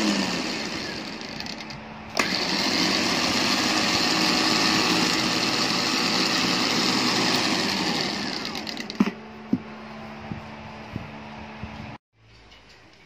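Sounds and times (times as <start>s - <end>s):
electric winch motor whining: 0.0s - 9.0s.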